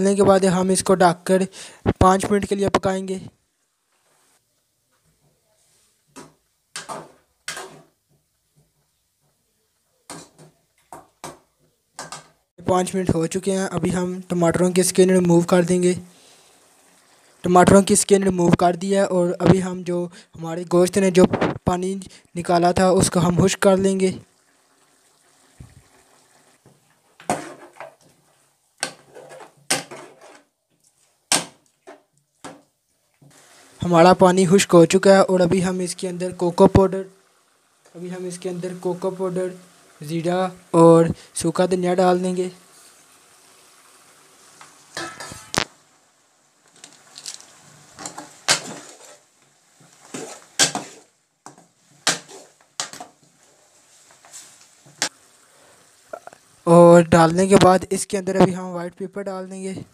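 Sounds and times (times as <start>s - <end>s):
ladle scraping a metal pot: 44.9s - 45.7s, 50.0s - 51.1s
ladle clanking against a steel pan: 45.0s - 45.6s.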